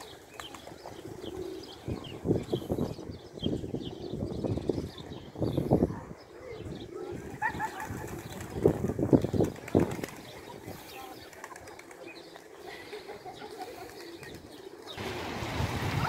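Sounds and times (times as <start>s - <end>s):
pigeon wings flapping: 0.0s - 1.0s, 7.2s - 12.6s.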